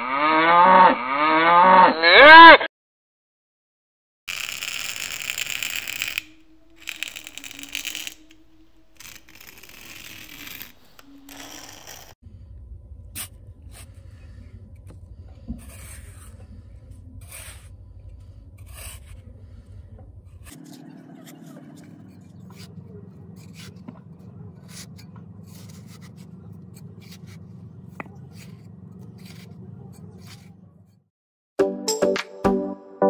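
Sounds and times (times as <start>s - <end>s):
stick scratching in sand: 4.3s - 12.2s, 17.2s - 17.7s, 18.6s - 19.7s, 20.4s - 30.6s
low steady hum: 6.1s - 31.0s.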